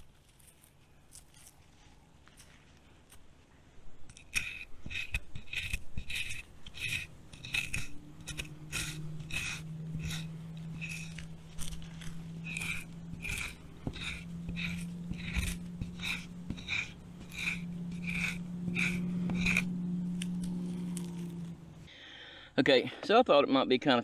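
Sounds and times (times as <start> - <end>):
steady low hum: 0.0 - 22.5
knife scraping bark: 4.0 - 21.9.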